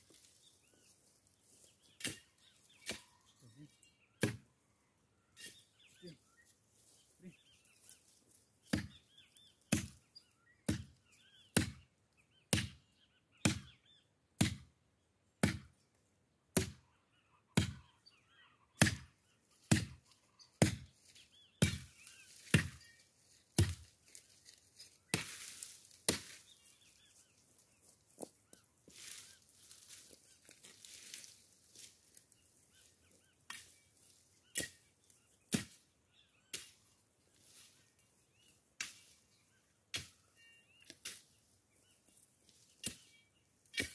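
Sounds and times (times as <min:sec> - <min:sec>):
branches rustling: 0:00.0 - 0:03.5, 0:05.5 - 0:09.7, 0:19.5 - 0:43.9
blade chopping woody stems: 0:09.7 - 0:10.0, 0:11.5 - 0:11.8, 0:12.5 - 0:12.8, 0:14.4 - 0:14.7, 0:15.4 - 0:15.7, 0:16.5 - 0:16.8, 0:17.6 - 0:17.8, 0:18.8 - 0:19.1, 0:19.7 - 0:20.0, 0:20.6 - 0:20.9, 0:21.6 - 0:22.9, 0:23.6 - 0:23.9, 0:25.1 - 0:26.7, 0:34.5 - 0:34.8, 0:35.5 - 0:35.8, 0:42.6 - 0:43.9.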